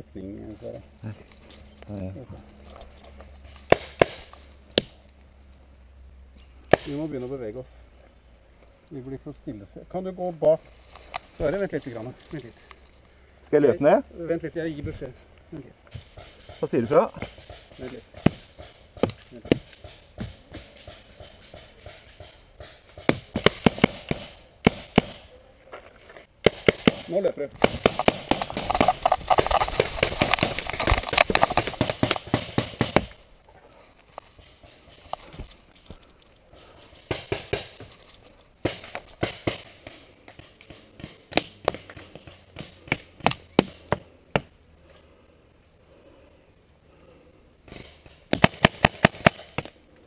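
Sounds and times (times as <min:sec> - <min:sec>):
paintball markers firing: 0:03.6 - 0:05.0, 0:17.2 - 0:25.3, 0:26.4 - 0:33.2, 0:38.6 - 0:44.5, 0:47.7 - 0:49.8.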